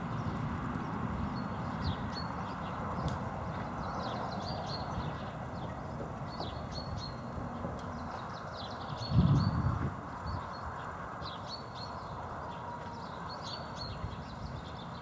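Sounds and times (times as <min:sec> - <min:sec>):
horse hooves on grass: 0:09.8 - 0:14.9.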